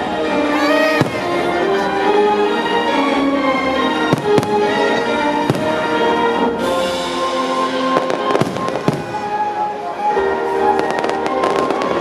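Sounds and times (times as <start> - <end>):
loud music: 0.0 - 12.0
fireworks bursting: 0.7 - 1.7, 4.0 - 12.0.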